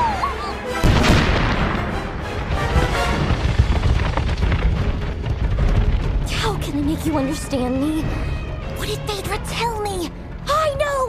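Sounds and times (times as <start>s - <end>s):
film score: 0.0s - 11.0s
explosion boom: 0.8s - 6.3s
low rumble with cracks: 0.8s - 7.5s.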